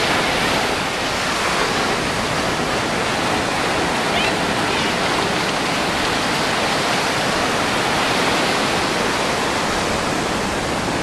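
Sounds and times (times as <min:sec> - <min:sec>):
surf breaking on beach: 0:00.0 - 0:11.0.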